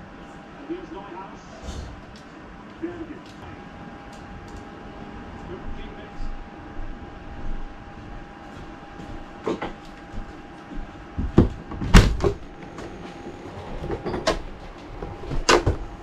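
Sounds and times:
background hum: 0:00.0 - 0:16.0
sharp knocks and bumps: 0:11.2 - 0:13.0.

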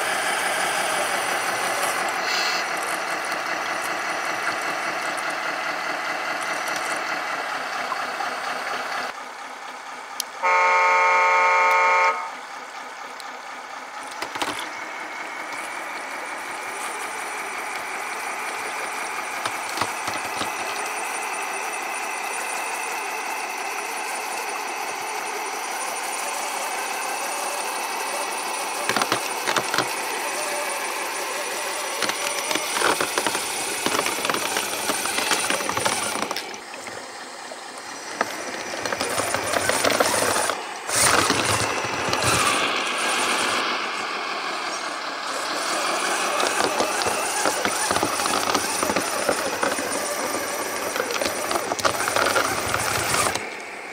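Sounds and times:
truck horn: 0:10.4 - 0:12.5
electric motor whine: 0:14.1 - 0:53.9.

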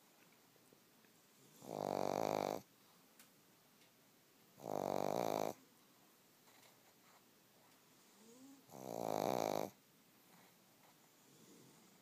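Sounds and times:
dog snoring: 0:01.4 - 0:02.7, 0:04.6 - 0:05.6, 0:08.2 - 0:09.8, 0:11.2 - 0:12.0.

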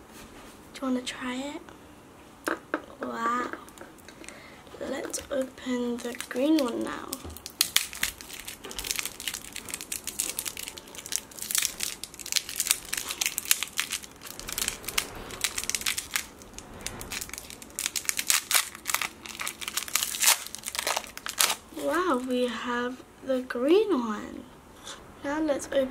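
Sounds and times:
wrapper crinkling: 0:03.7 - 0:22.3.

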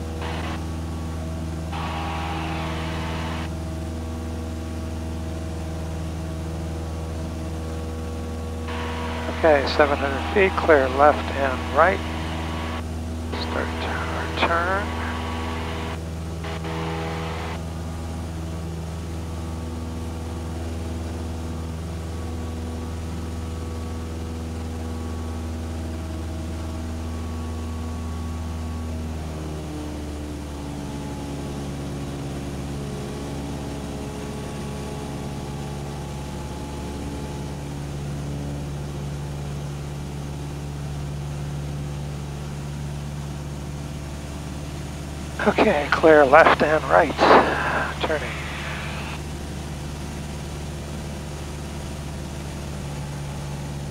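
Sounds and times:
airplane engine and propeller droning: 0:00.0 - 0:53.9.

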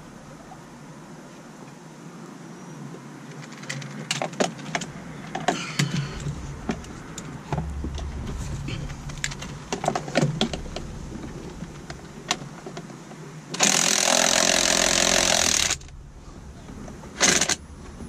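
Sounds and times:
cordless power driver running: 0:13.6 - 0:15.9.

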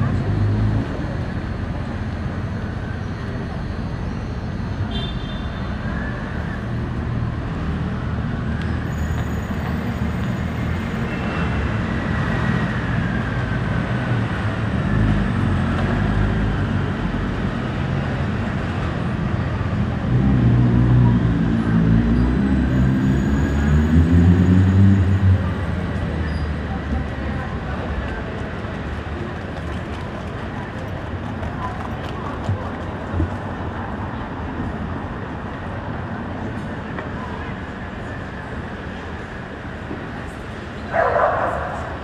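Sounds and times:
city street traffic: 0:00.0 - 0:42.0.

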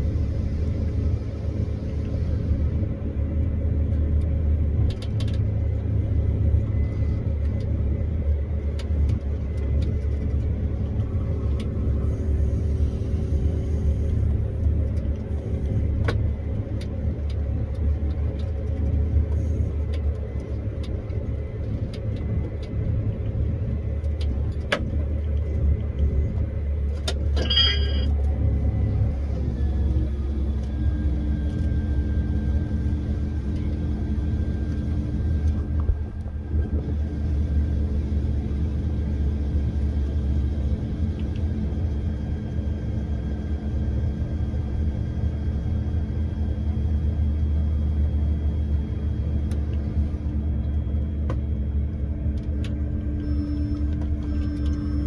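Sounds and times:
combine harvester engine drone: 0:00.0 - 0:55.0
steady higher whine: 0:25.2 - 0:55.0.

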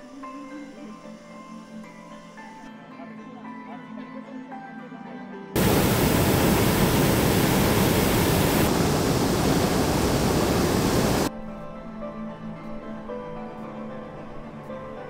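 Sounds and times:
propane burner blast: 0:05.6 - 0:11.3.

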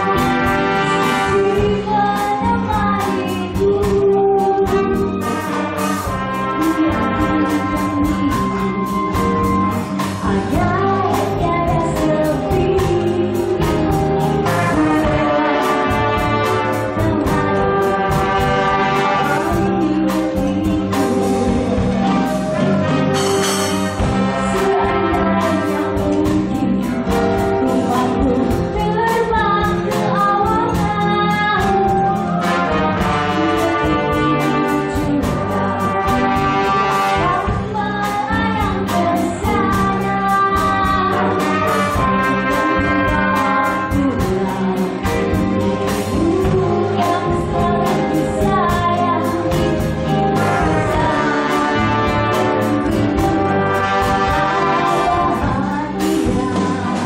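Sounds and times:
brass section: 0:00.0 - 0:01.8, 0:04.9 - 0:10.0, 0:14.4 - 0:20.0, 0:21.8 - 0:26.0, 0:32.3 - 0:37.7, 0:41.1 - 0:44.2, 0:50.0 - 0:55.6
steady drum beat: 0:00.0 - 0:57.0.

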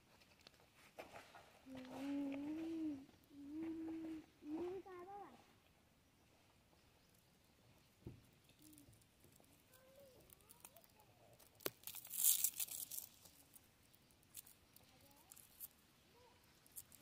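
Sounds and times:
onion skin crackling tear: 0:08.6 - 0:14.6.

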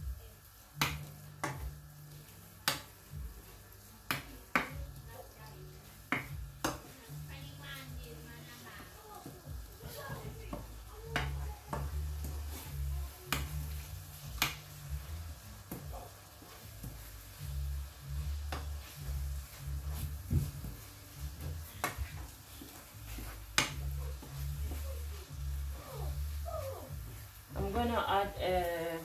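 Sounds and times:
wooden spoon stirring meat in pan: 0:00.5 - 0:29.0
pulsing bass music: 0:10.4 - 0:22.3, 0:22.9 - 0:28.6.

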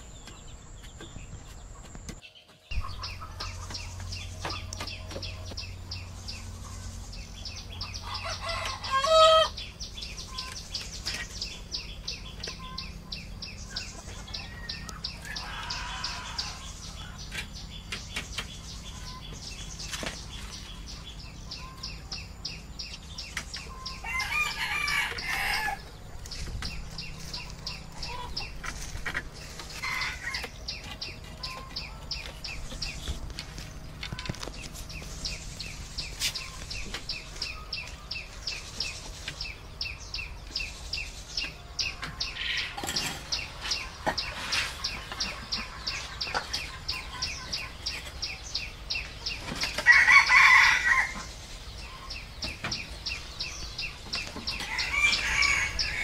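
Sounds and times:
chickens clucking: 0:00.0 - 0:56.0
rooster crowing: 0:08.1 - 0:09.5, 0:14.6 - 0:16.7, 0:24.0 - 0:25.9, 0:49.8 - 0:51.2, 0:54.6 - 0:56.0.

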